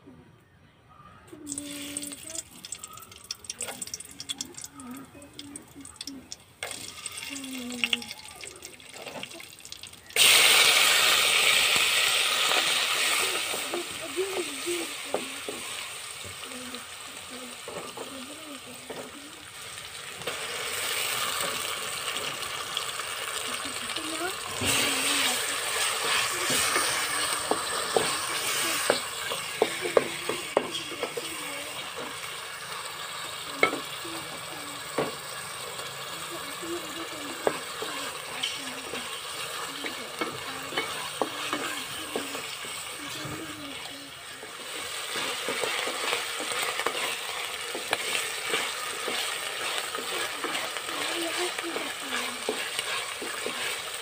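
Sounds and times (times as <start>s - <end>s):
spices frying in oil: 1.4s - 54.0s
loud sizzle of food in oil: 1.5s - 4.7s, 5.4s - 54.0s
wooden spatula scraping a pot: 37.4s - 54.0s.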